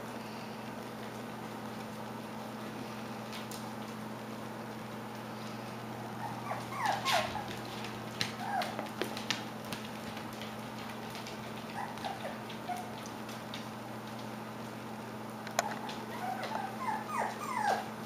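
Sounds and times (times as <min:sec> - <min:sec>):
puppies squeaking and whimpering: 0:06.2 - 0:07.6, 0:08.4 - 0:08.8, 0:11.7 - 0:13.0, 0:15.6 - 0:17.9.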